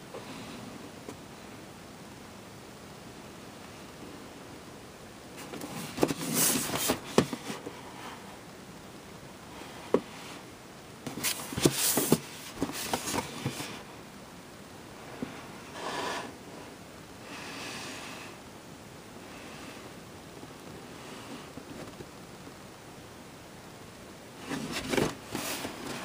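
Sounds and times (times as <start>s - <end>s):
cardboard box rustling and scraping: 5.4s - 7.6s, 11.1s - 13.9s, 24.4s - 26.0s.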